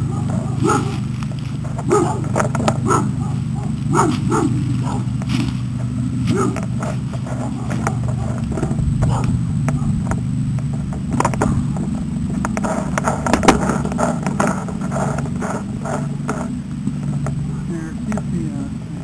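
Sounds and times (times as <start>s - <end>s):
low rumble: 0.0s - 19.0s
pole and cable knocks and rattles: 0.9s - 2.9s, 5.1s - 17.4s.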